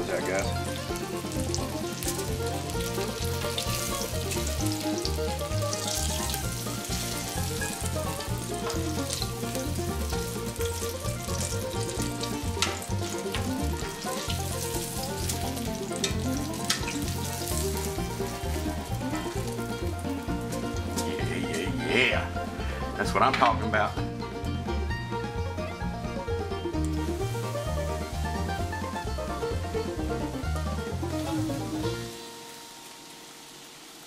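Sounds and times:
chicken frying in hot oil: 0:00.0 - 0:21.1, 0:30.9 - 0:34.0
background music with bass line: 0:00.0 - 0:32.2.

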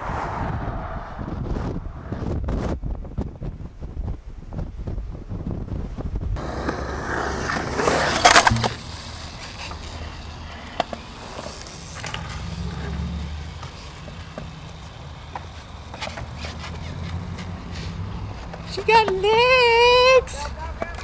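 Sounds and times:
skateboard wheels rolling on concrete: 0:01.2 - 0:21.0
skateboard wheels sliding on asphalt: 0:04.6 - 0:21.0.

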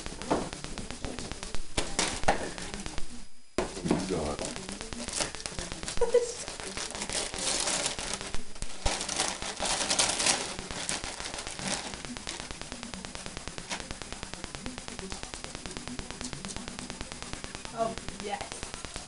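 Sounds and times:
wrapping paper tearing: 0:05.0 - 0:12.4
tissue paper rustling: 0:05.1 - 0:12.1.

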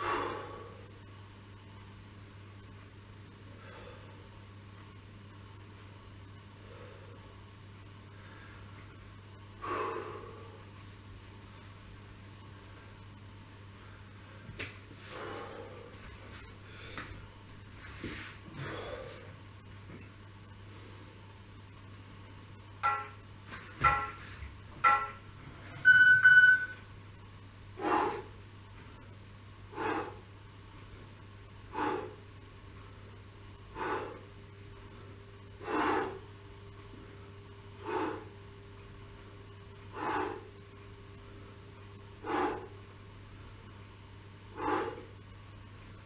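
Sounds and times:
steady low hum: 0:00.0 - 0:46.0
short breaths: 0:31.7 - 0:32.2.

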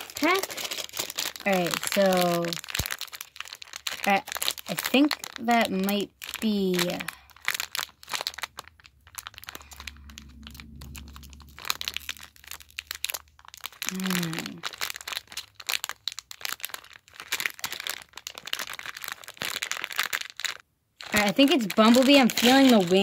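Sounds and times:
foil bag crinkling: 0:00.0 - 0:23.0.

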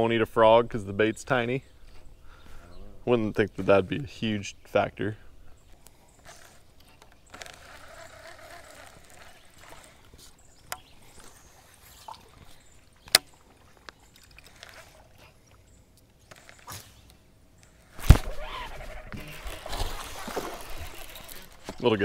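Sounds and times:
water lapping against hull: 0:07.7 - 0:15.8, 0:18.2 - 0:21.8.

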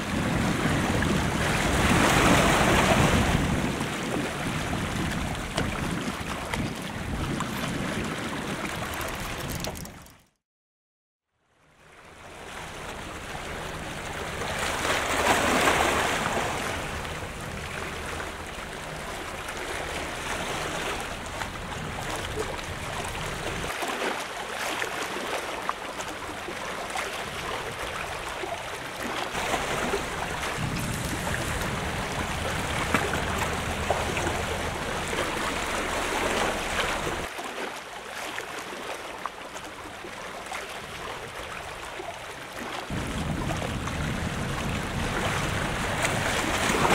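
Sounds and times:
wind rumble on microphone: 0:00.0 - 0:10.1, 0:12.1 - 0:23.7, 0:26.1 - 0:37.3, 0:42.8 - 0:46.9
waves lapping against seawall: 0:00.0 - 0:10.3, 0:11.8 - 0:46.9.

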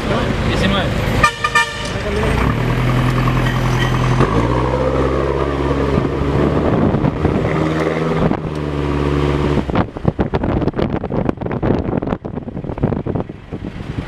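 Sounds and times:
car engine droning: 0:00.0 - 0:14.0
wind buffeting microphone: 0:05.6 - 0:14.0.

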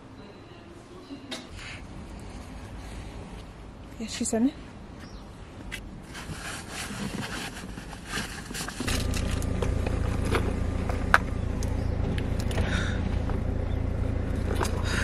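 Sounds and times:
vehicle running rumble: 0:08.7 - 0:15.0.

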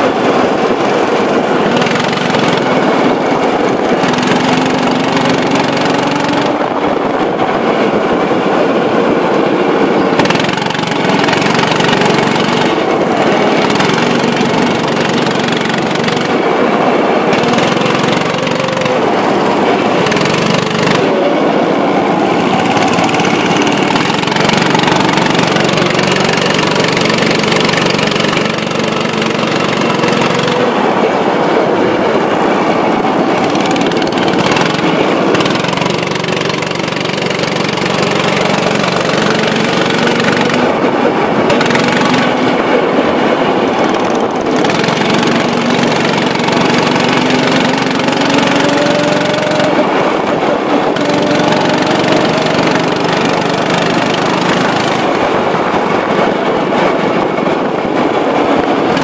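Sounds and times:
go-kart engine revving: 0:00.0 - 0:59.0.

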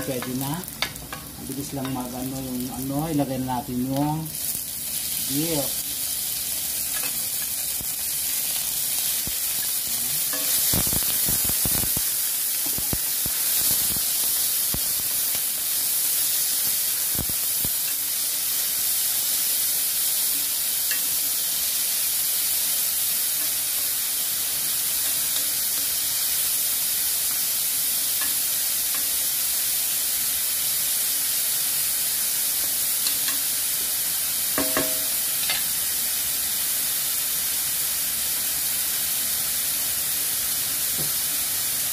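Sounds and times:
meat sizzling in hot oil: 0:00.0 - 0:41.9.

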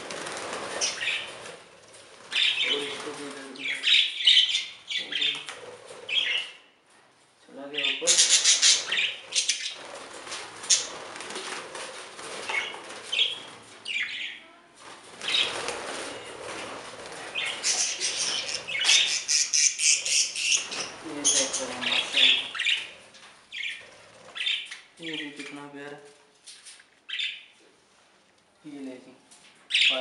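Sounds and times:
budgerigars flapping wings: 0:00.0 - 0:03.6, 0:08.6 - 0:13.7, 0:14.8 - 0:19.4, 0:20.4 - 0:22.5
birds chirping and squawking: 0:00.0 - 0:06.8, 0:07.6 - 0:14.5, 0:15.1 - 0:25.8, 0:26.4 - 0:27.6, 0:29.6 - 0:30.0.

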